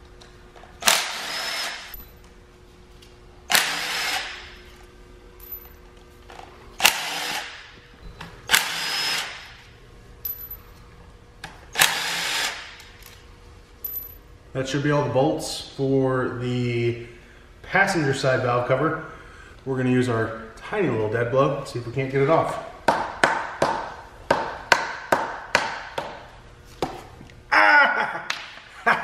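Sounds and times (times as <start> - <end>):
cordless impact tool bursts: 0.8 - 2.0, 3.5 - 4.5, 6.8 - 7.7, 8.5 - 9.6, 11.7 - 12.9.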